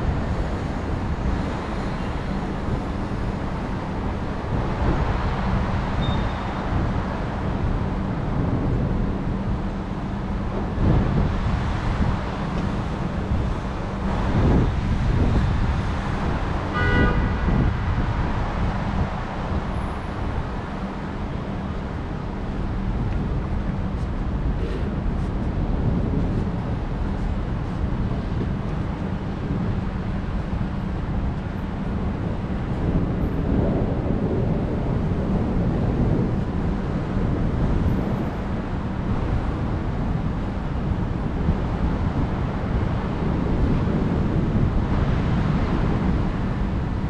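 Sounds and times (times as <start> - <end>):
heavy rain: 0.0 - 47.0
traffic on wet road: 0.0 - 47.0
car horn toot: 16.7 - 17.5.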